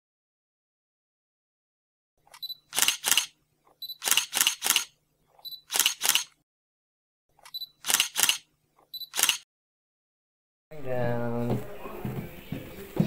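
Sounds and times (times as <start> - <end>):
camera shutter clicks: 2.3 - 5.0, 5.6 - 6.4, 7.4 - 9.4.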